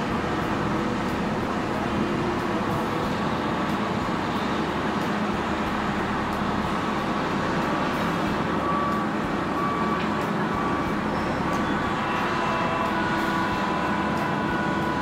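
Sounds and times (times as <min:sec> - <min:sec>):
heavy diesel machinery running: 0:00.0 - 0:15.0
short high squeals: 0:10.5 - 0:15.0.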